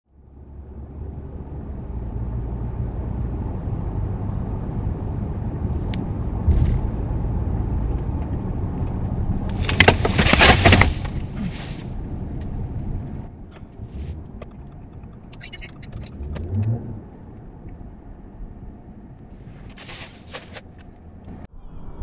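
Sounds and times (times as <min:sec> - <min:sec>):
car road and engine noise: 0:00.1 - 0:22.0
sharp clicks: 0:13.5 - 0:16.8.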